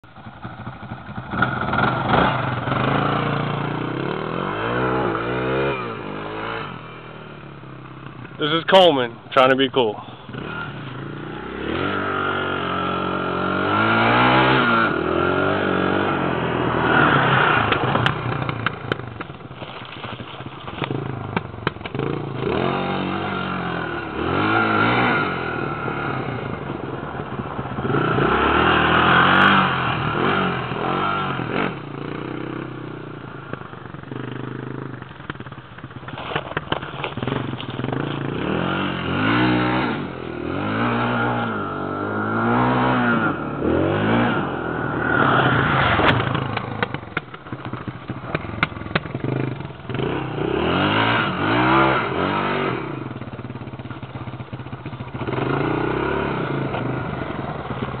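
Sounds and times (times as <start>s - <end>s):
quad engine revving: 0.6s - 58.0s.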